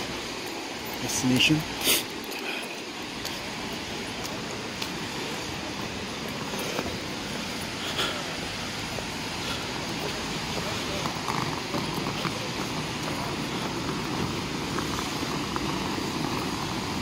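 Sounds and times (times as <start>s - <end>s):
rain hiss: 0.0s - 17.0s
traffic on wet streets: 0.0s - 17.0s.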